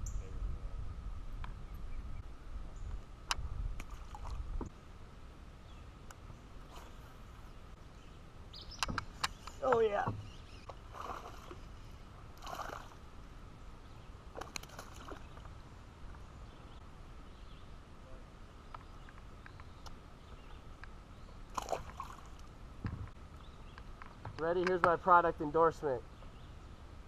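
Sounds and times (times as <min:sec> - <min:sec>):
water lapping around kayak: 0:09.8 - 0:13.2
splashes and knocks: 0:21.5 - 0:23.0.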